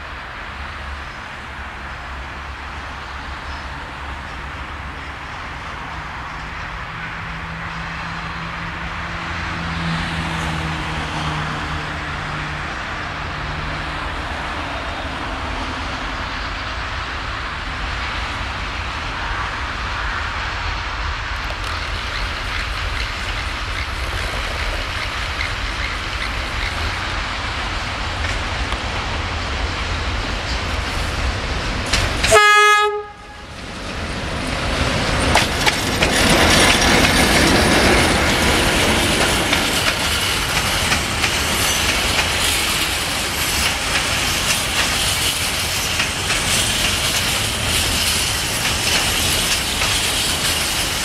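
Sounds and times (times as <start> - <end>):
diesel locomotive engine droning: 0.0 - 51.0
wagon wheels rolling on rails: 21.5 - 28.7, 33.7 - 51.0.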